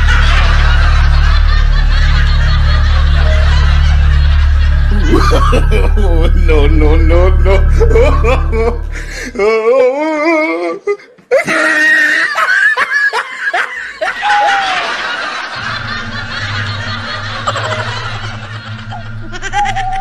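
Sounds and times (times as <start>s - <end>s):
low steady drone: 0.0s - 9.6s, 15.1s - 20.0s
person cackling with laughter: 0.0s - 20.0s.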